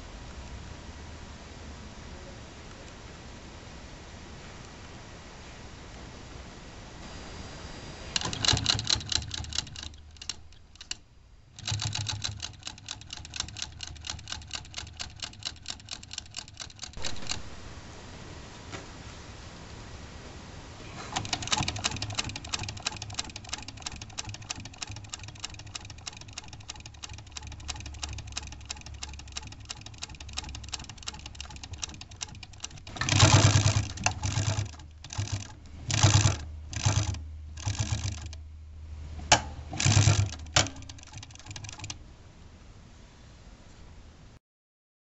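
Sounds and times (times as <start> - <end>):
sewing machine needle clatter: 8.2 - 11.0, 11.6 - 17.4, 21.0 - 38.4, 39.3 - 42.0.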